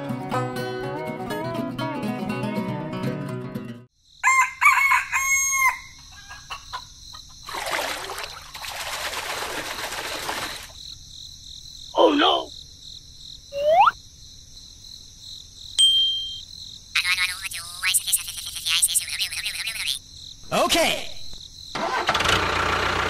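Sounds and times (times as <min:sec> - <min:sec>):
rooster crowing: 0:04.2 - 0:06.8.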